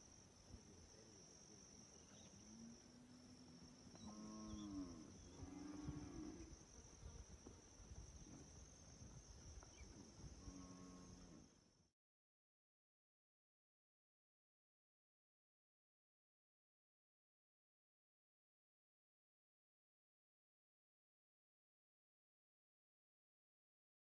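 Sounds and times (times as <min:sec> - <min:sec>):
high-pitched insect drone: 0:00.0 - 0:11.9
faint cattle mooing: 0:04.0 - 0:06.5, 0:10.4 - 0:11.5.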